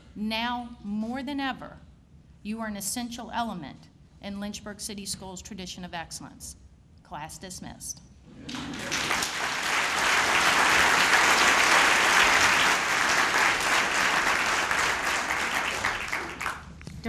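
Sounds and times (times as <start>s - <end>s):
large audience applauding: 8.5s - 16.8s.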